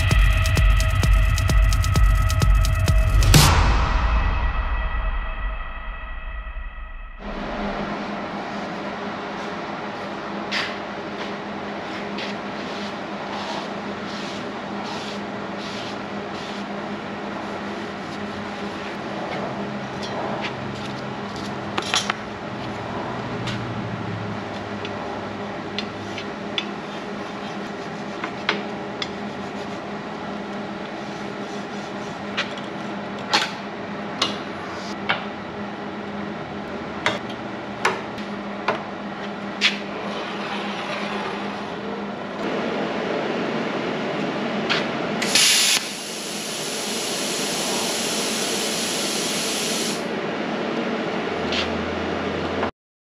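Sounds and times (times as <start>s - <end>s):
workshop hum: 0.0s - 52.7s
air hissing: 45.2s - 50.0s.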